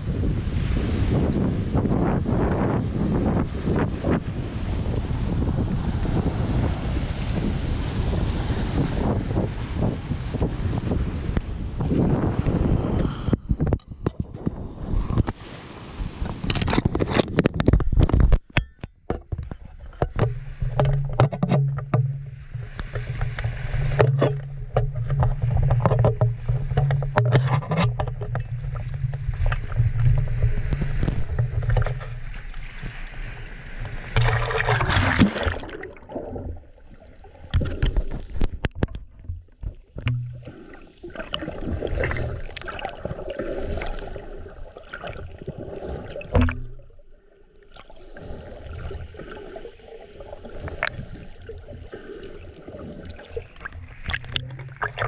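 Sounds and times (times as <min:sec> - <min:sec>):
water splashing: 0:19.1 - 0:55.0.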